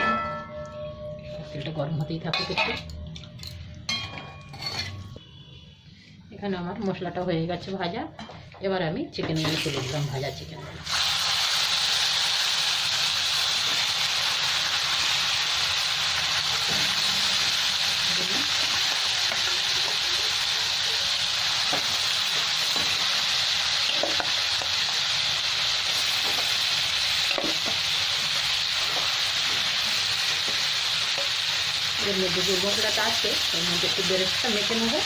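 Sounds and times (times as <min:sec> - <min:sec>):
chicken frying in hot oil: 0:10.8 - 0:35.0.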